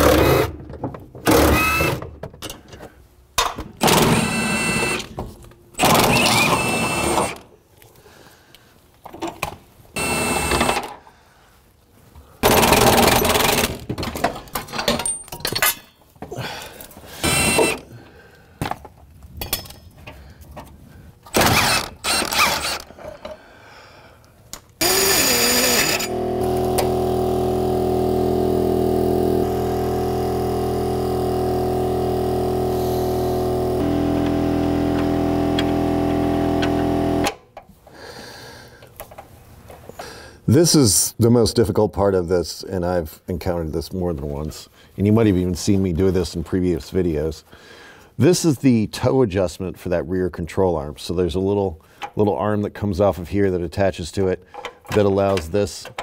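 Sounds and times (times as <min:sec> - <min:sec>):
tool and metal-handling noise: 0:12.5 - 0:17.8, 0:18.6 - 0:23.4.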